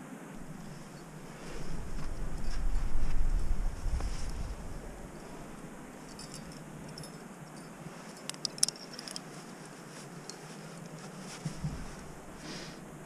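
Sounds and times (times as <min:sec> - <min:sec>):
faint steady hiss: 0:00.0 - 0:13.0
climbing gear clicks: 0:00.4 - 0:12.4
dull thump: 0:11.4 - 0:12.2.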